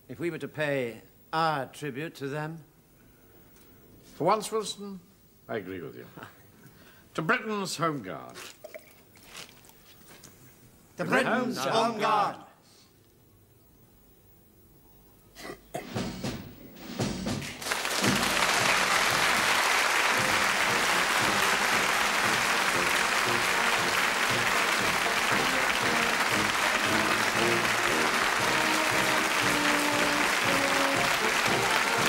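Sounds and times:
audience applauding: 0:17.5 - 0:32.0
band playing instrumental music: 0:18.0 - 0:32.0.

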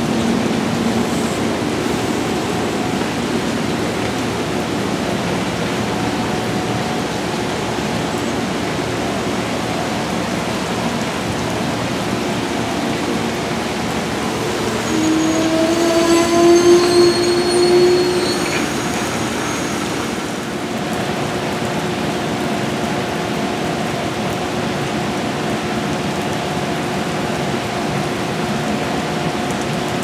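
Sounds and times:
train cars rolling past: 0:00.0 - 0:21.4
rain hiss: 0:00.0 - 0:30.0.

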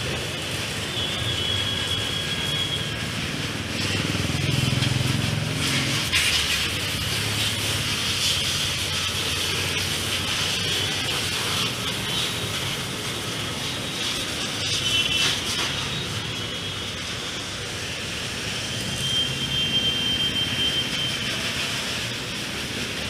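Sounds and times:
pressure washer spray hissing: 0:00.0 - 0:23.0.

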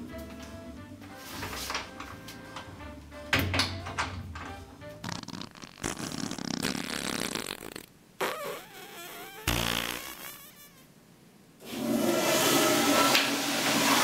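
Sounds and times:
loud low fart: 0:05.0 - 0:10.9.

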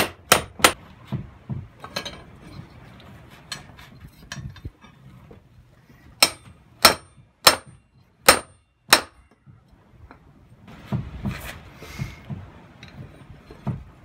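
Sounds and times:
hammer striking steel on anvil: 0:00.0 - 0:00.8, 0:06.2 - 0:09.4.

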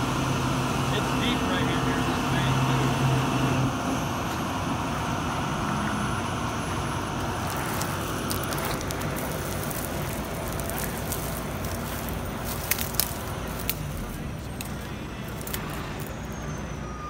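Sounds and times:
heavy truck engine and winch: 0:00.0 - 0:17.0
small clicks and crackles: 0:07.2 - 0:16.2.

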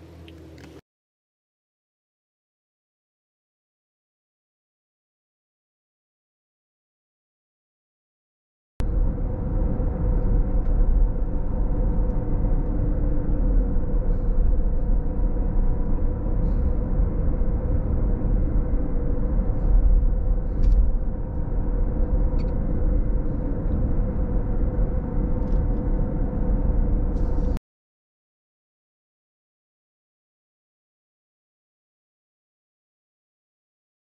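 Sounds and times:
car engine and road rumble: 0:00.0 - 0:00.8, 0:08.8 - 0:27.6
faint steady drone: 0:08.8 - 0:27.6.

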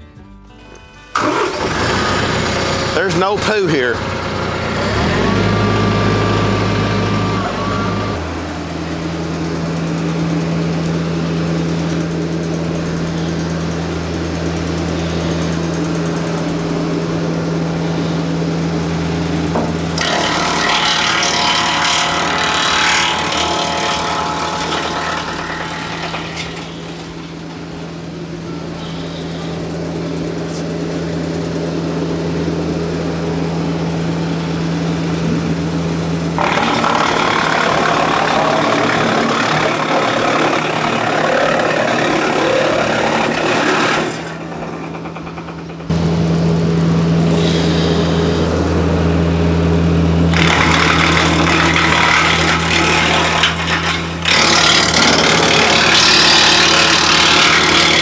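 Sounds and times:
diesel tractor running: 0:00.0 - 0:58.0
wood chipper chipping brush: 0:01.1 - 0:58.0.

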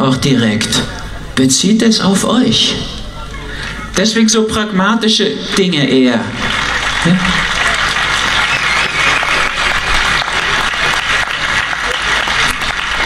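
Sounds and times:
crowd applauding: 0:06.2 - 0:13.0.

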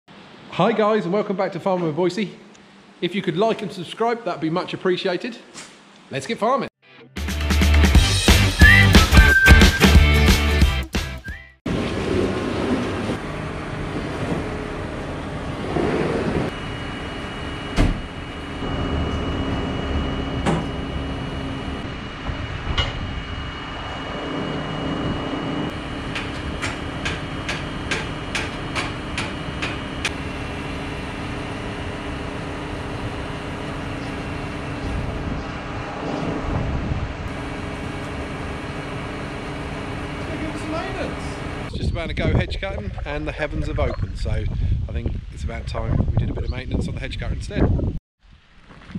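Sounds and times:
tractor diesel engine humming: 0:12.9 - 0:22.2, 0:24.2 - 0:41.7
high whine: 0:16.3 - 0:47.0.

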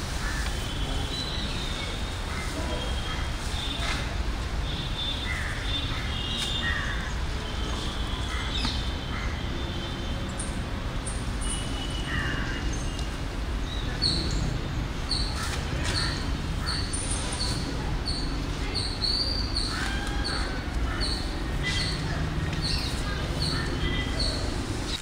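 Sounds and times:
other bird calls: 0:15.1 - 0:24.5.

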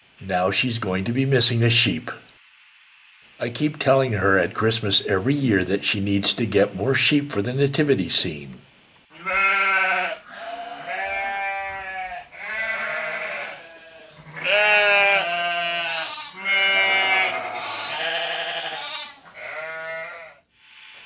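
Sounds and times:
sheep bleating: 0:09.1 - 0:20.4.

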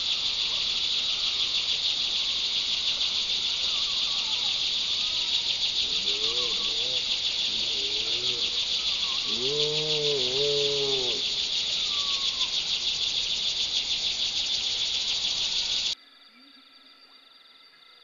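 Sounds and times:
faint high insect tones: 0:00.0 - 0:18.0
pulsing insect chorus: 0:00.0 - 0:18.0
low drawn-out animal call: 0:05.8 - 0:12.6.

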